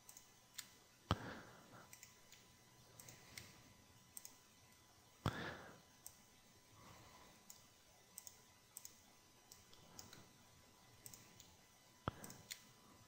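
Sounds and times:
soft ticks: 0.0s - 0.7s, 4.1s - 4.8s, 7.4s - 10.2s, 11.0s - 12.7s
computer mouse clicks: 0.0s - 5.4s, 6.0s - 6.2s, 7.3s - 10.4s, 11.0s - 12.8s.

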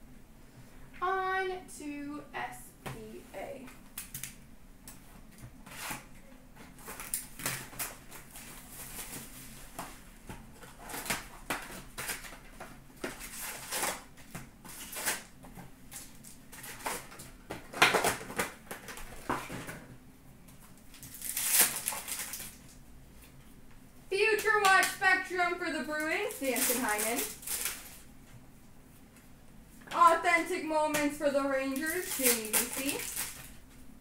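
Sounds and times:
wrapper rustling and crinkling: 5.7s - 19.7s, 20.8s - 22.8s, 24.4s - 28.1s, 31.5s - 33.7s
card packs torn open: 10.6s - 15.3s, 20.9s - 22.7s, 26.2s - 28.0s, 31.7s - 33.6s.

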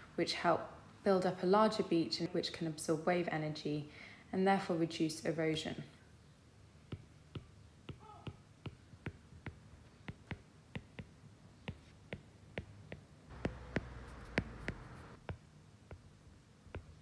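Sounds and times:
stylus tapping on glass screen: 11.7s - 16.0s.

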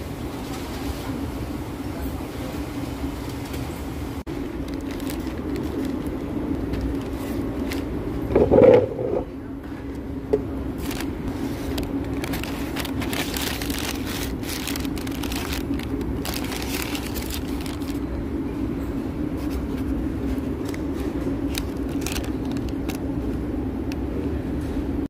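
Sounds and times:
paper bag crinkling: 4.3s - 9.2s, 10.8s - 18.1s, 19.4s - 23.2s.

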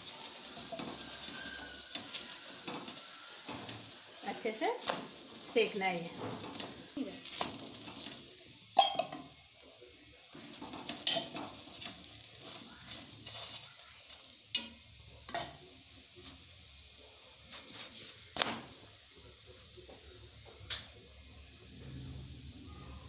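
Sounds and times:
steel spatula scraping on griddle: 0.0s - 8.4s, 10.4s - 15.6s
faint oil sizzling: 0.0s - 23.0s.

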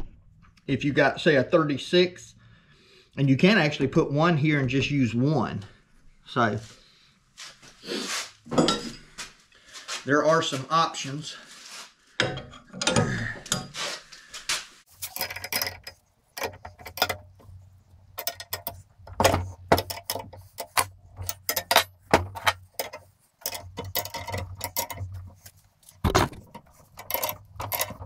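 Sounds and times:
metal wrenches clinking: 8.5s - 9.0s, 12.2s - 13.9s, 14.9s - 28.0s.

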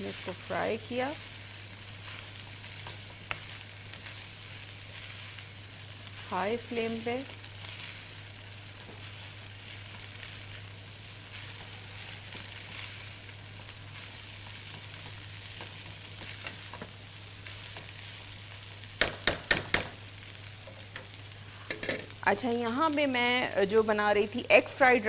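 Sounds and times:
rice sizzling in a pan: 0.0s - 25.0s
sharp knocks: 19.0s - 19.9s.

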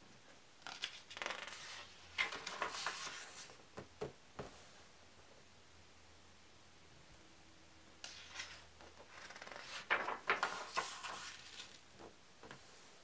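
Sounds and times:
book page turning: 0.6s - 3.6s, 8.0s - 11.9s.

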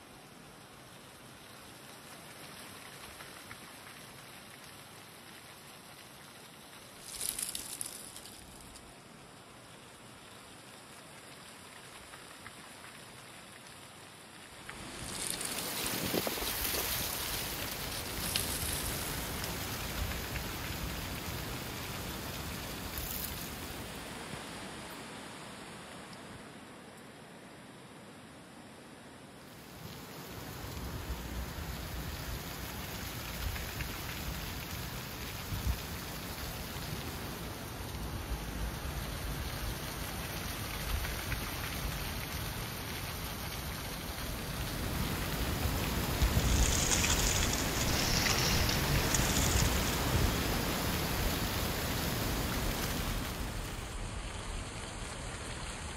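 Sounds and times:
dry leaves skittering on asphalt: 6.8s - 9.0s, 14.5s - 23.9s, 39.1s - 55.9s
gusting wind: 14.5s - 27.9s, 29.6s - 55.9s.

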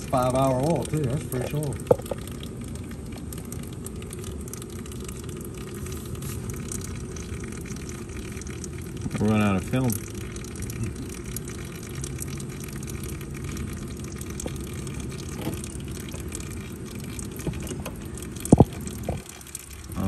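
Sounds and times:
oil pouring in thin stream: 0.0s - 20.0s.

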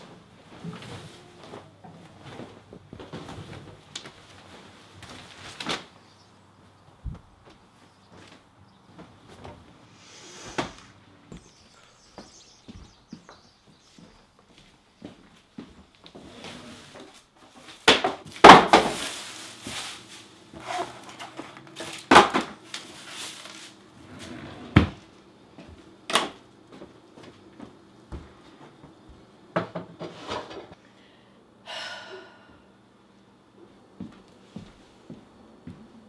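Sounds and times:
items being rummaged: 17.6s - 24.4s.

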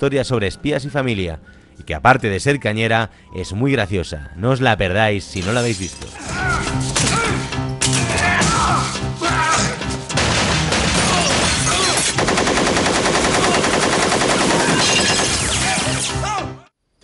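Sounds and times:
film music: 0.0s - 16.8s
submachine gun fire: 10.2s - 15.7s.

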